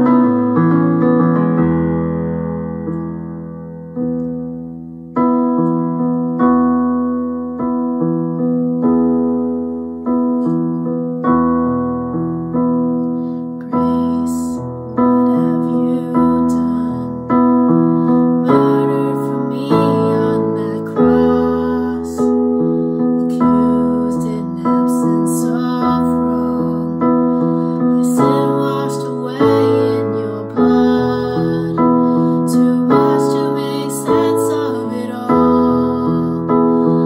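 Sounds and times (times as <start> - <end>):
piano chords: 0.0 - 37.0
person singing: 13.5 - 37.0.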